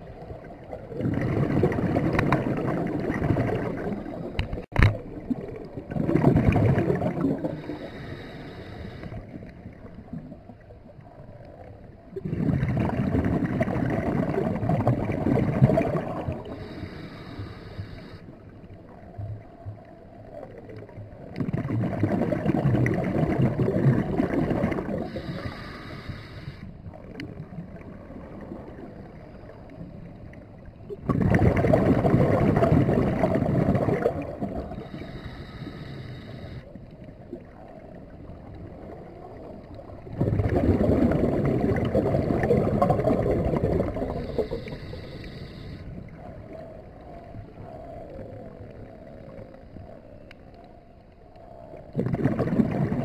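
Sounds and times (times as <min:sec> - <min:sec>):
exhaled bubbles rushing underwater: 0:00.0 - 0:53.0
regulator inhalation hiss: 0:07.5 - 0:09.3, 0:16.4 - 0:18.2, 0:25.1 - 0:26.7, 0:34.7 - 0:36.7, 0:44.1 - 0:46.0.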